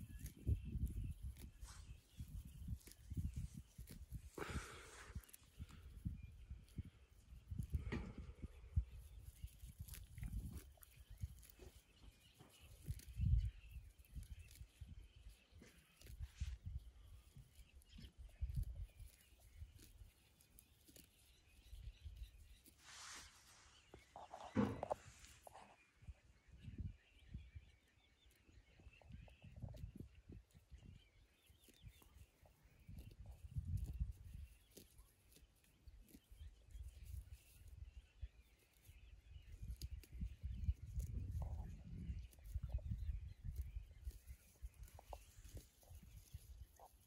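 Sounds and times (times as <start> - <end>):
sheep chewing grass: 0.0 - 5.7, 8.8 - 14.7, 15.4 - 16.8, 32.9 - 37.5, 40.9 - 41.4, 42.1 - 47.0
faint bird chirps: 0.0 - 47.0.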